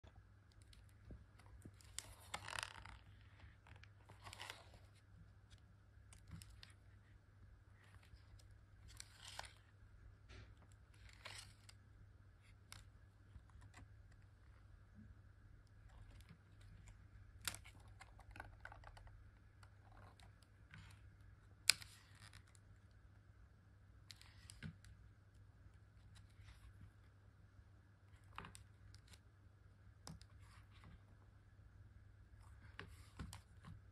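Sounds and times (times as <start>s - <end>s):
faint low hum: 0.0s - 33.9s
card rustling: 0.5s - 7.1s, 10.7s - 11.8s
cardboard pages turning: 0.5s - 9.8s, 10.5s - 14.7s, 15.7s - 22.9s, 24.0s - 25.0s, 25.9s - 27.1s, 28.1s - 29.3s, 30.0s - 31.2s, 32.3s - 33.9s
card pages tapping and clicking: 15.8s - 22.6s.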